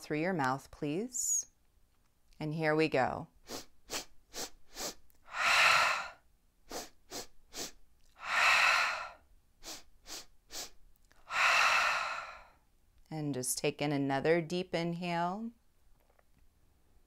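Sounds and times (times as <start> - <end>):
woman sniffing inhales: 3.4 - 12.6
woman exhaling through mouth: 3.5 - 12.6.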